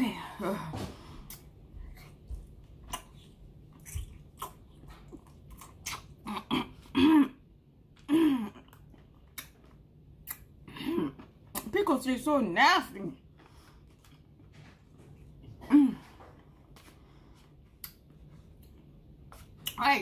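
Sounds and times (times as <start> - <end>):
person crunching a pickle: 2.8 - 6.3
woman clearing her throat: 6.3 - 7.4, 8.1 - 8.6.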